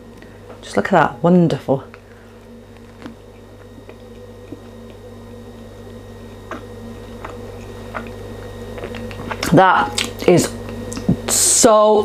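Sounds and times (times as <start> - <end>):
steady low hum: 0.0 - 12.0
person chewing food: 2.3 - 11.3.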